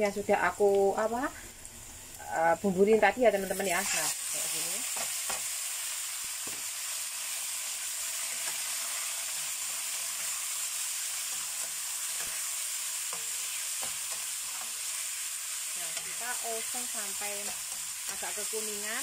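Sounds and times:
chicken sizzling in hot oil: 0.1 - 19.0
metal spatula scraping a pan: 3.5 - 5.6, 8.2 - 18.7.

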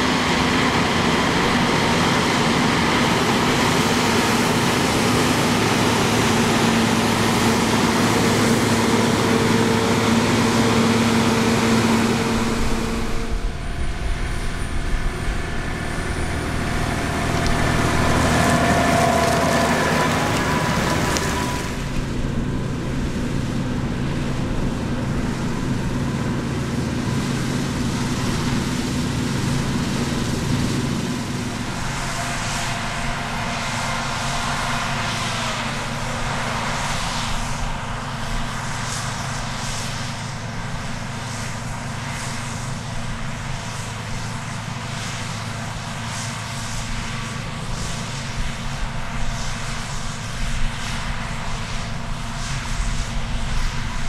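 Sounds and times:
diesel engines of harvest machinery: 0.0 - 54.0.

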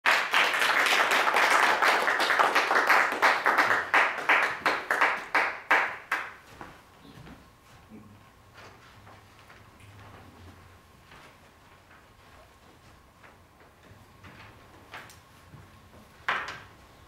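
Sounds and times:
audience applause: 0.0 - 6.4.

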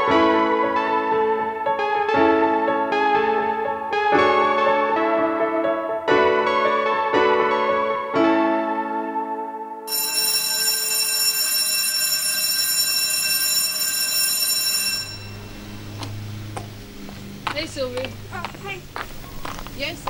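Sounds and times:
piano chords: 0.0 - 19.6
electric school bell ringing: 9.9 - 16.0.

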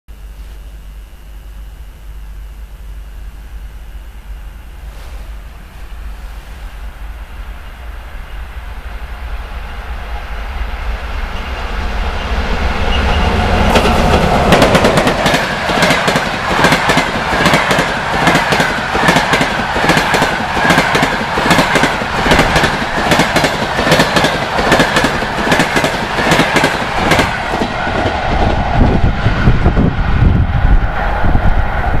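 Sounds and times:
electric locomotive passing: 2.5 - 32.0
wind on microphone: 26.9 - 32.0.

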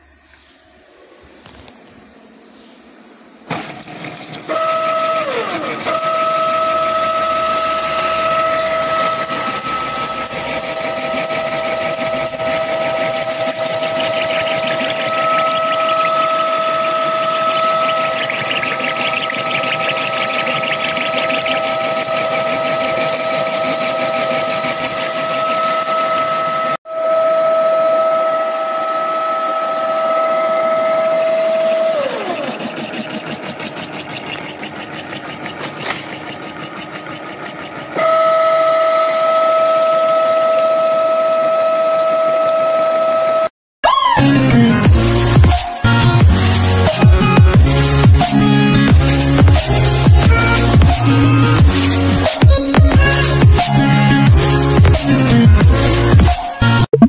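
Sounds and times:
milling cutter high-pitched whine: 0.0 - 43.5, 44.8 - 56.6
milling machine running: 3.2 - 43.4, 44.8 - 56.4.

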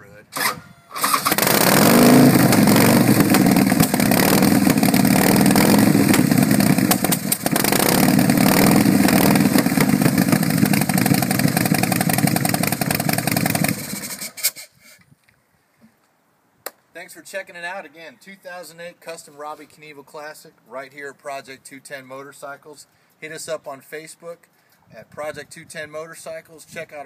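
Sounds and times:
motorcycle engine running: 1.2 - 14.3.

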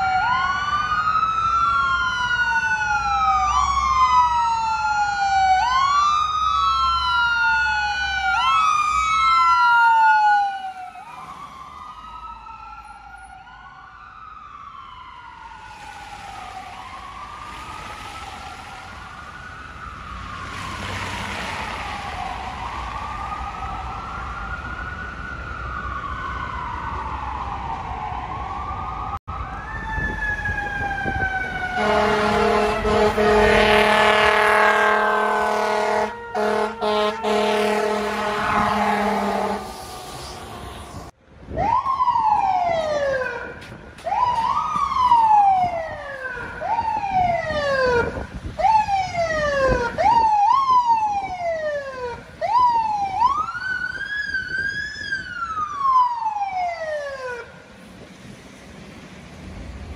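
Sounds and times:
emergency vehicle siren wailing: 0.0 - 59.9
long steady horn blast: 31.7 - 40.0.

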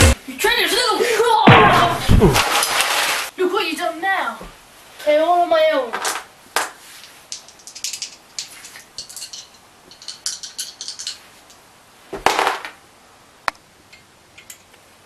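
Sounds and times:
dice rattling in hands: 7.3 - 11.2.

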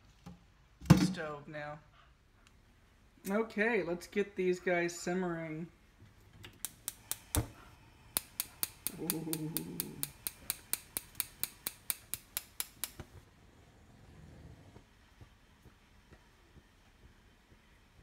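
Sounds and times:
gas stove igniter clicking: 6.5 - 13.2.

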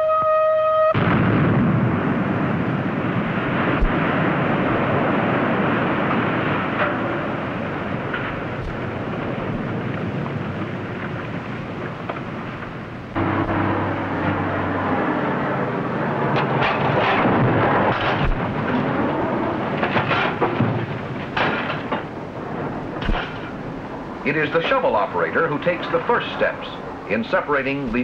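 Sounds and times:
warning siren steady tone: 0.0 - 1.0, 13.2 - 15.4
mine blast explosion: 0.9 - 26.8
rumble of falling rock: 1.0 - 14.4, 16.2 - 24.1.

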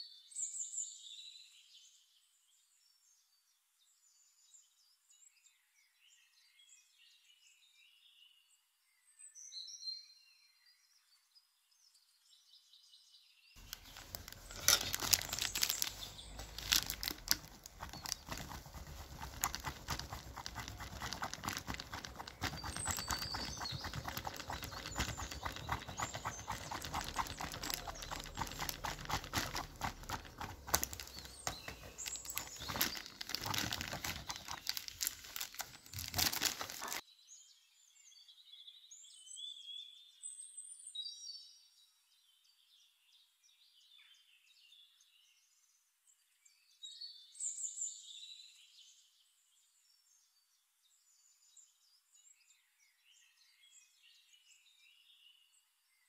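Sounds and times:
faint bird chirping: 10.6 - 37.9.

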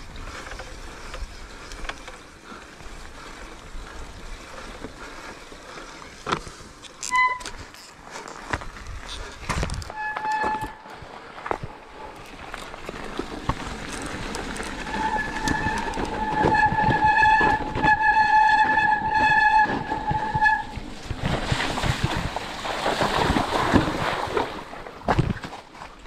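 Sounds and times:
mountain bike rattling and knocking: 0.0 - 26.0
rushing wind and tyres: 0.0 - 26.0
high-pitched brake squeal: 7.0 - 7.7, 9.9 - 10.9, 14.8 - 20.7.

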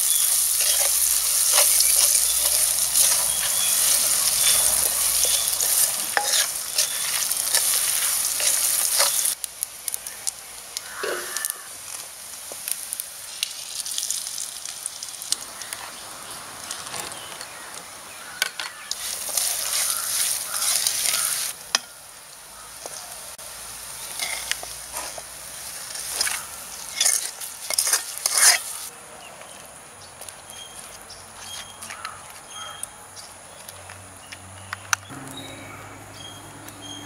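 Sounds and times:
wooden spatula scraping pan: 0.0 - 9.4, 18.6 - 21.5, 24.0 - 25.3, 25.9 - 28.9
spices sizzling in hot oil: 0.0 - 28.9.

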